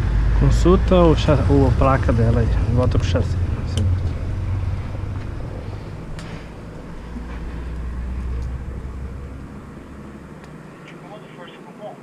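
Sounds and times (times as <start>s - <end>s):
vehicle engine rumble: 0.0s - 11.8s.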